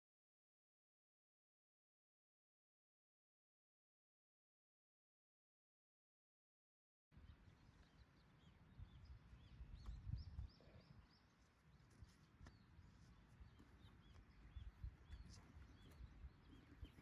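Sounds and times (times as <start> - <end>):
small birds chirping: 7.2 - 17.0.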